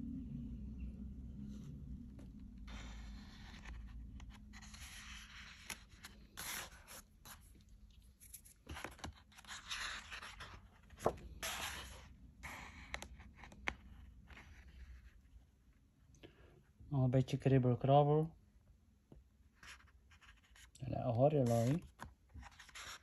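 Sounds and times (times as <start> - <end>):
book pages rustling: 1.5 - 15.2, 21.4 - 23.0.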